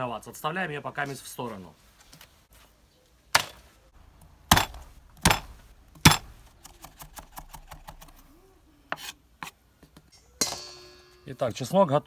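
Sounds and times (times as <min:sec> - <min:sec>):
knife chopping on wooden board: 0:04.5 - 0:06.4.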